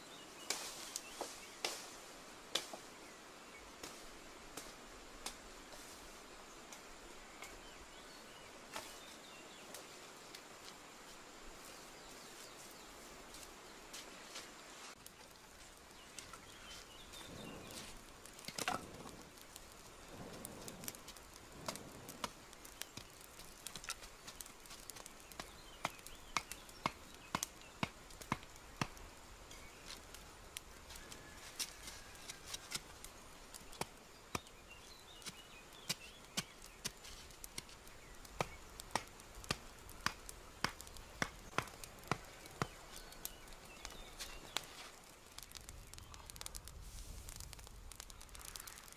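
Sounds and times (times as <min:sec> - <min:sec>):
campfire crackling: 0:00.0 - 0:48.9
fire popping sharply: 0:15.0 - 0:48.9.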